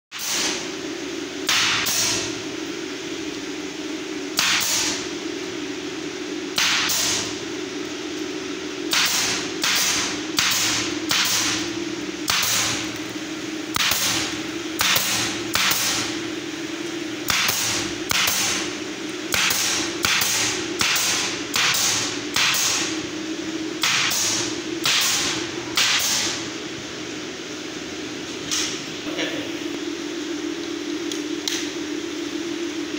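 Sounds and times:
nail gun firing: 0.2s - 0.6s, 1.5s - 2.2s, 4.4s - 5.0s, 6.6s - 7.3s, 8.9s - 11.6s, 12.3s - 12.8s, 13.7s - 14.2s, 14.8s - 16.0s, 17.3s - 18.6s, 19.3s - 22.9s, 23.8s - 26.4s.

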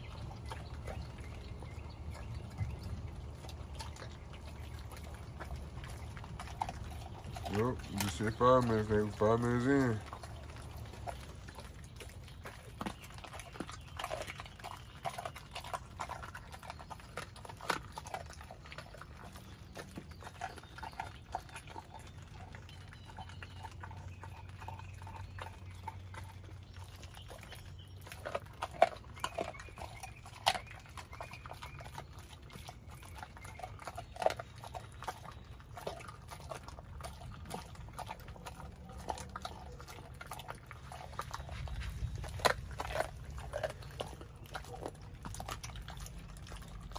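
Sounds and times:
dog crunching bones: 0.0s - 46.9s.

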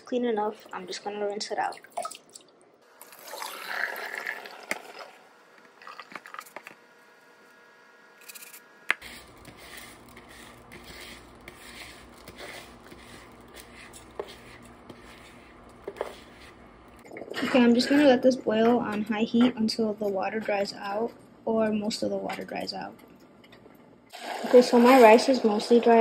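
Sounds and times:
water poured into sink: 3.0s - 5.2s
steady low hum: 5.0s - 24.1s
wet rice scraped from bowl: 9.0s - 16.6s.

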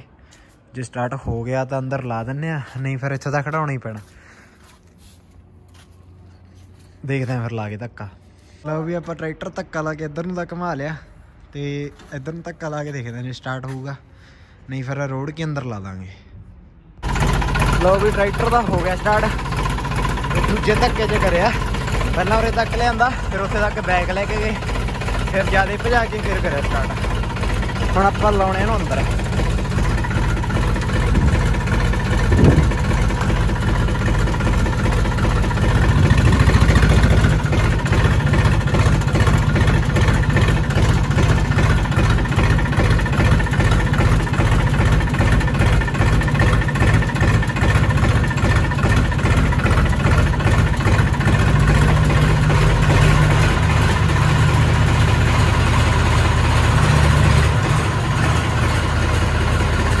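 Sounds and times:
diesel tractor engine running: 17.0s - 60.0s.

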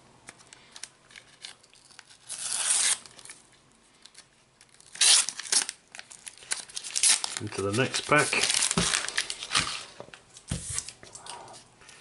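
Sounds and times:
wrapper tearing: 0.6s - 3.4s, 4.0s - 9.9s.

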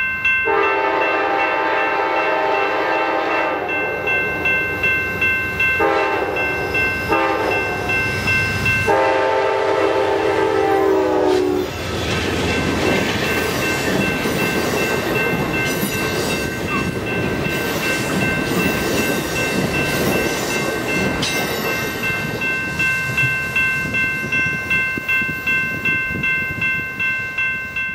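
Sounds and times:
train cars rumbling past: 0.0s - 27.9s
locomotive horn: 0.5s - 3.7s, 5.8s - 6.4s, 7.1s - 7.6s, 8.9s - 11.7s
high ringing tone: 3.3s - 9.3s.

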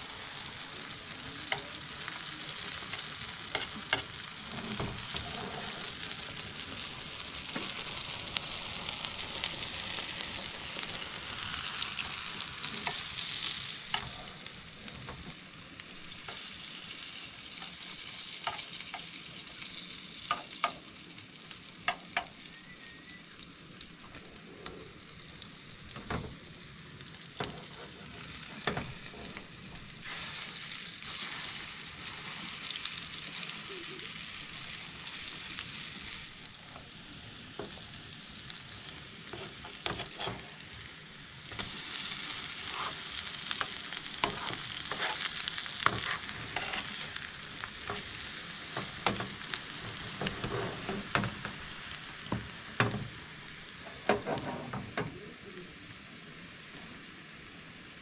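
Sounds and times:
food sizzling in a pan: 0.0s - 58.0s
utensil knocking and scraping: 39.4s - 40.5s, 48.8s - 51.5s.

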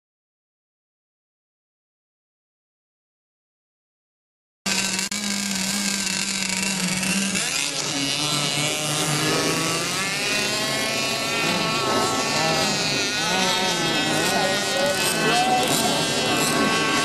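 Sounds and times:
model boat engine buzzing: 4.7s - 17.0s.

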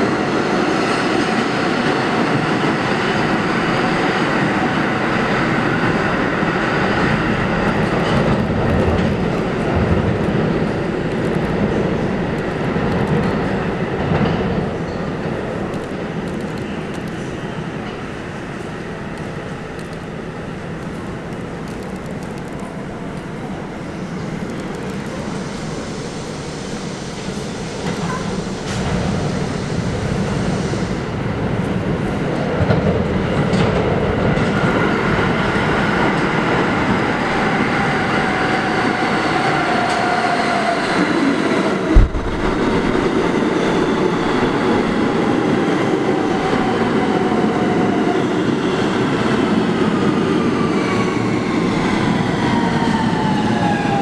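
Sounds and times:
train wheels rumbling on rail: 0.0s - 54.0s
sharp thump: 41.9s - 44.6s.

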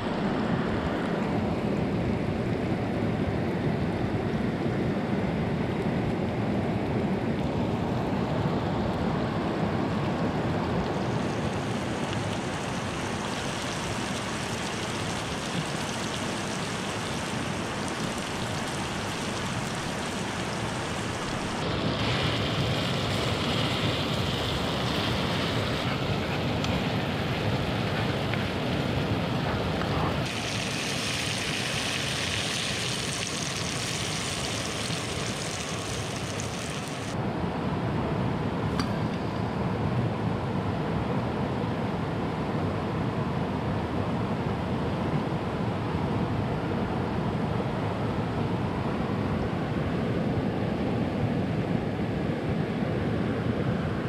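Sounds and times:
stream water rushing: 8.4s - 37.2s.

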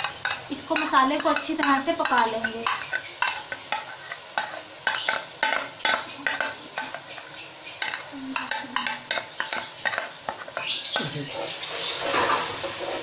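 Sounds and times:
light sizzle: 0.0s - 13.0s
metal spoon scraping a bowl: 0.0s - 13.0s.

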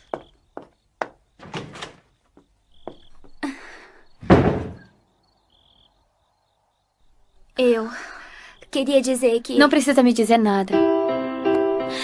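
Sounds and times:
door shutting with a thud: 4.2s - 4.9s.

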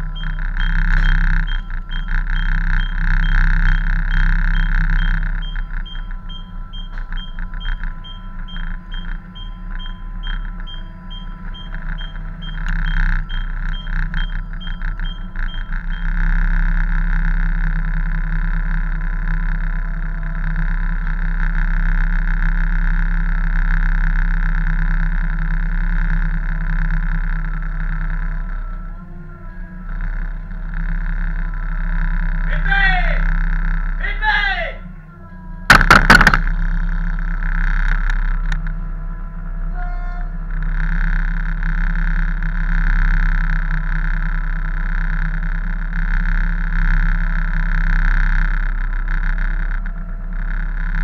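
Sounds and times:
high electronic beep: 0.0s - 17.0s
ship engines droning: 0.0s - 51.0s.

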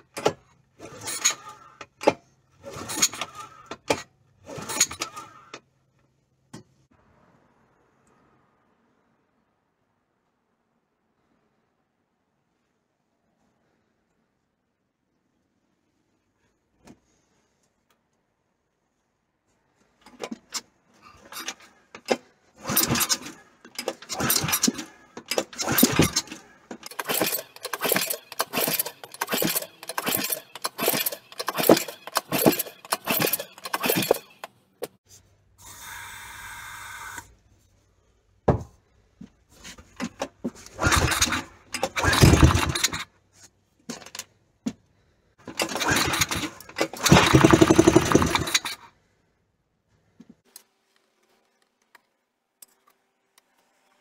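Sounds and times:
recoil starter pulls whirring: 0.0s - 5.8s, 20.0s - 35.0s, 40.0s - 43.2s, 45.3s - 49.0s.

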